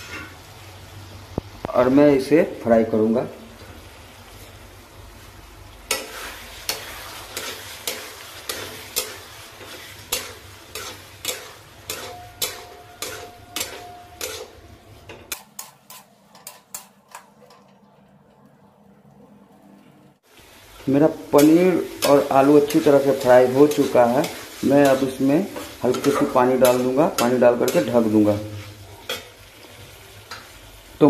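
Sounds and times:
frying sizzle: 0.0s - 31.0s
metal spatula scraping a pan: 5.9s - 17.8s, 21.4s - 30.6s.

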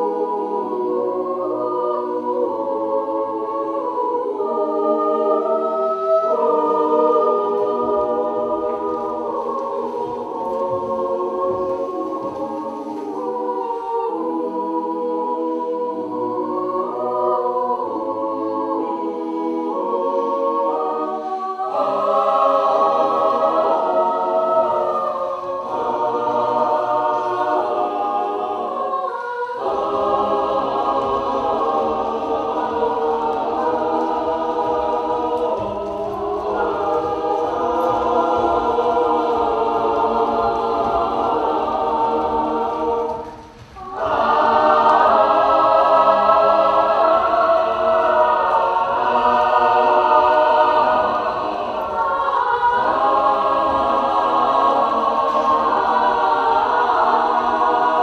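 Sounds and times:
choir singing sustained chords: 0.0s - 58.0s.

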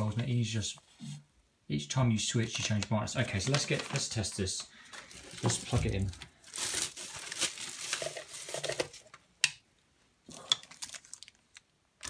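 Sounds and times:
plastic film crinkling: 2.4s - 9.2s, 10.6s - 11.7s.

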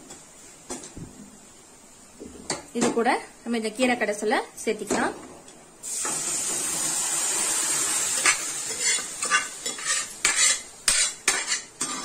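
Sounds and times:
onions sizzling in hot oil: 3.8s - 12.0s
steel ladle scraping metal pots: 8.2s - 12.0s.

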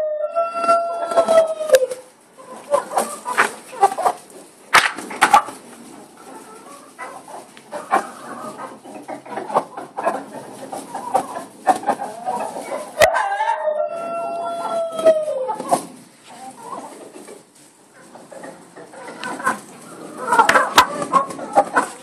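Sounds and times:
chicken long drawn-out call: 0.0s - 2.1s, 12.3s - 15.7s
chickens clucking: 0.0s - 22.0s.

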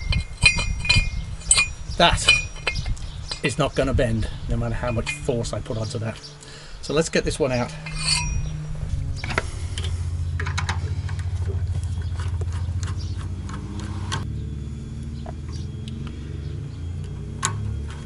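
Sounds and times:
nut driver clicking and scraping: 0.0s - 6.4s, 7.5s - 11.3s
steady low hum: 0.0s - 18.0s.

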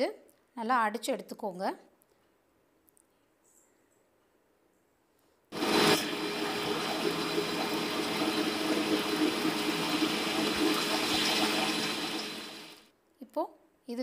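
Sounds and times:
mixer grinder motor running: 5.6s - 12.8s.

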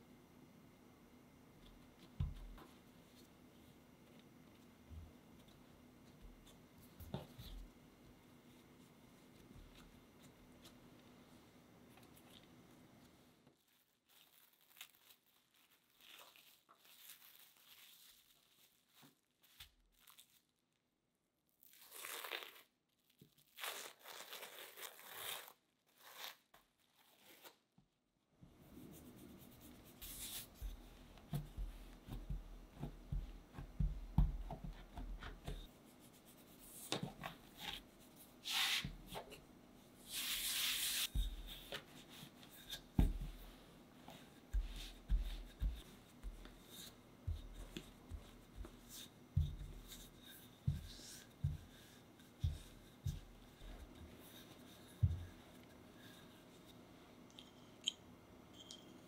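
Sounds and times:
cling film crinkling: 13.6s - 20.6s.

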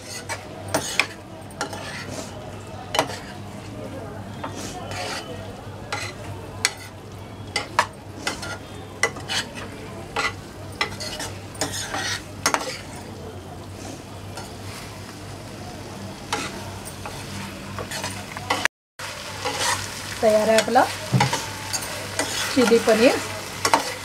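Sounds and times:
metal spatula scraping a pan: 0.0s - 3.4s, 4.4s - 7.0s, 7.6s - 13.1s, 16.3s - 18.7s, 19.4s - 24.0s
sauce sizzling: 14.5s - 24.0s.

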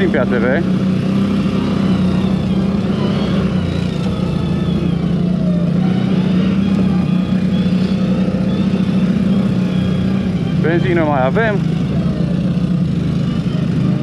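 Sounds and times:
atv engine humming: 0.0s - 14.0s.

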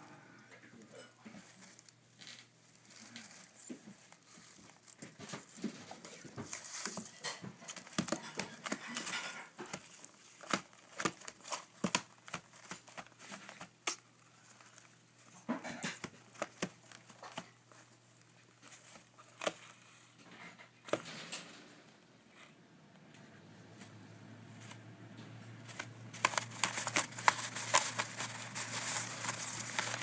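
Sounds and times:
paper rustling and crinkling: 1.2s - 20.2s, 25.6s - 30.0s.

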